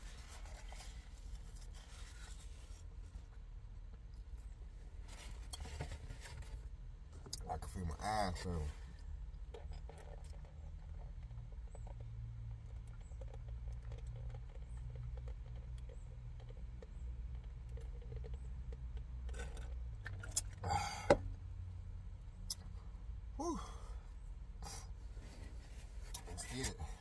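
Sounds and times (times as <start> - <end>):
pitched vocal sound: 23.4 - 23.8.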